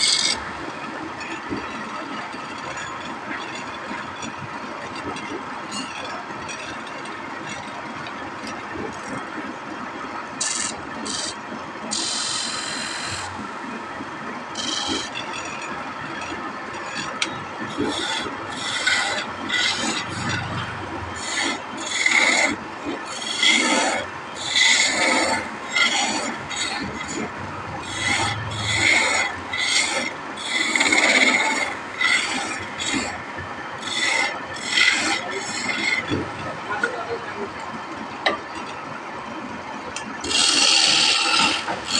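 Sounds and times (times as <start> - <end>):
chisel scraping wood on lathe: 0.0 - 0.5, 10.4 - 11.4, 14.6 - 15.6, 16.3 - 36.9, 40.2 - 41.9
wood lathe running: 0.0 - 0.9, 10.4 - 11.3, 14.6 - 15.1, 17.2 - 33.2, 33.8 - 37.0, 40.2 - 41.9.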